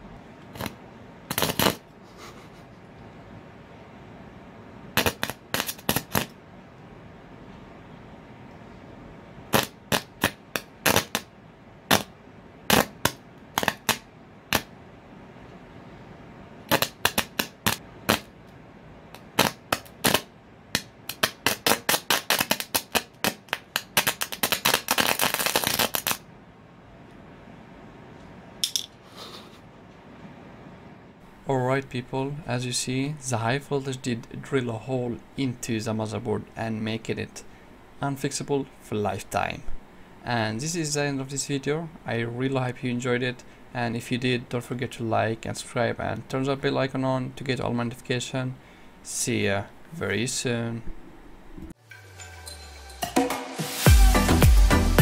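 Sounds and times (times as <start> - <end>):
electrical arcing snapping and crackling: 0.6 - 1.8, 5.0 - 6.4, 9.5 - 11.3, 11.9 - 12.1, 12.7 - 14.7, 16.7 - 18.4, 19.2 - 26.3.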